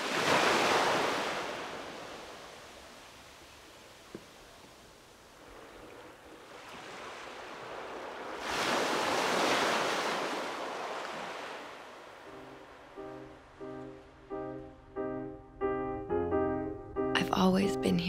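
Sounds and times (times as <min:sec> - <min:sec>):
wave breaking on sandy beach: 0:00.0 - 0:04.4, 0:06.4 - 0:12.6.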